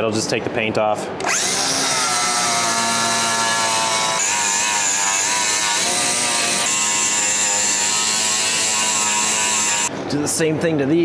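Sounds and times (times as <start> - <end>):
angle grinder whining on metal: 1.2 - 9.9.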